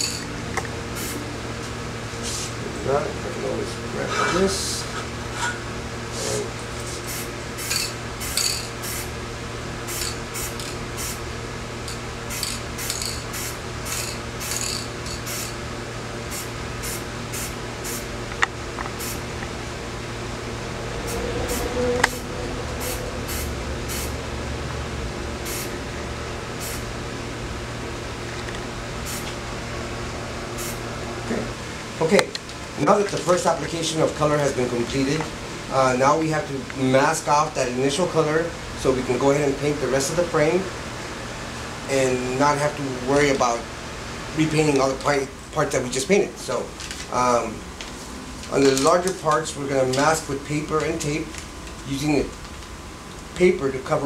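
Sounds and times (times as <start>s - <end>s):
steady low hum: 0.0s - 54.0s
spray paint bursts: 1.0s - 1.2s, 7.0s - 9.1s, 9.9s - 11.2s, 12.3s - 15.6s, 16.3s - 18.1s, 19.0s - 19.2s, 22.8s - 24.1s, 25.4s - 25.7s, 26.6s - 26.8s, 29.0s - 29.3s, 30.6s - 30.8s.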